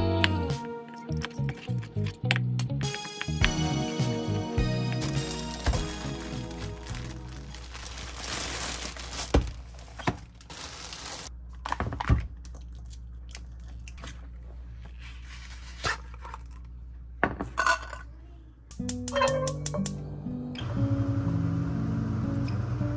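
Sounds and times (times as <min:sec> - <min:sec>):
rustling or tearing: 0:04.9 - 0:11.3.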